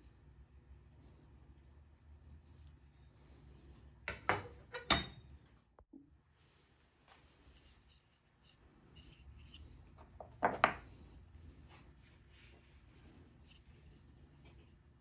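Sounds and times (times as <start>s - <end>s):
wooden handles being handled: 7.1s - 14.7s.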